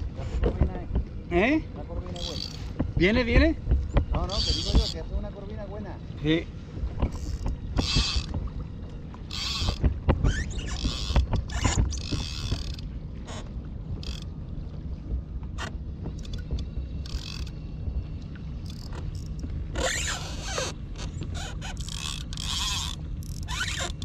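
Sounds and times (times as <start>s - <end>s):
steady low rumble: 0.0s - 21.8s
fishing reel drag buzzing: 2.2s - 2.7s, 7.1s - 8.3s, 9.3s - 13.4s, 14.0s - 14.3s, 17.0s - 17.6s, 18.6s - 20.8s, 21.4s - 24.0s.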